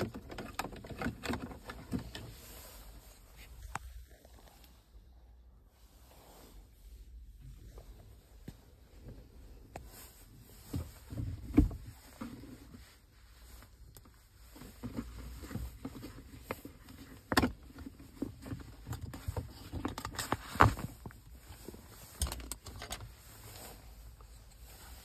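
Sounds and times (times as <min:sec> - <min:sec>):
plastic clicks and rustles: 0:00.0 - 0:02.4, 0:14.0 - 0:23.6.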